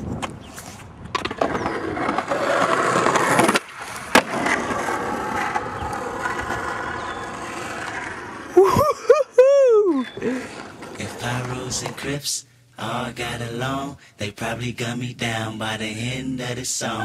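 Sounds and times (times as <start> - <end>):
skateboard wheels rolling on asphalt: 0.0 - 8.9, 9.9 - 12.3
skateboard sharp clack: 1.1 - 8.2.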